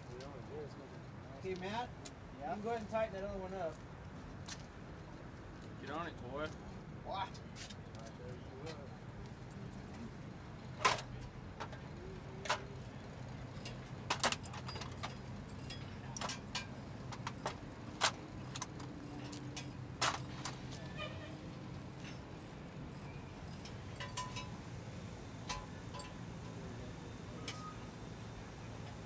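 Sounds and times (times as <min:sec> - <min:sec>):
hand tools clinking on metal: 0:10.8 - 0:24.8, 0:25.4 - 0:26.7.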